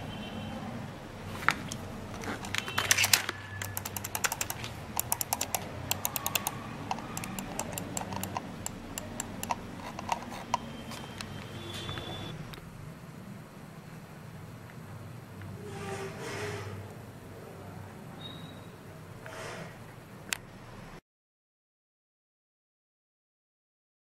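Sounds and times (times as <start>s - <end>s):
mouse button clicks: 3.6s - 10.7s.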